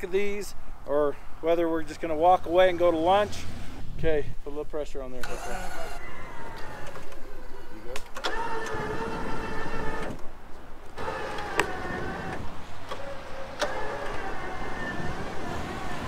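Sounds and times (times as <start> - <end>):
winch motor whining: 5.2 - 16.0.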